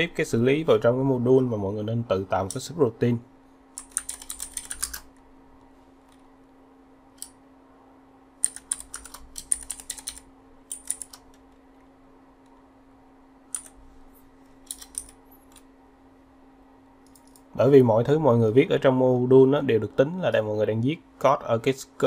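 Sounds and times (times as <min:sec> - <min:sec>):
faint steady hum: 0:00.0 - 0:22.0
computer keyboard typing: 0:03.8 - 0:05.1, 0:08.4 - 0:11.4, 0:13.5 - 0:13.8, 0:14.6 - 0:15.6.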